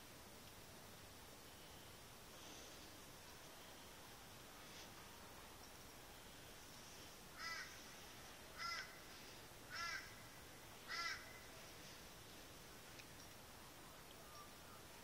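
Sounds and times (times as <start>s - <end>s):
bird harsh calls: 7.4s - 7.9s, 8.6s - 11.5s.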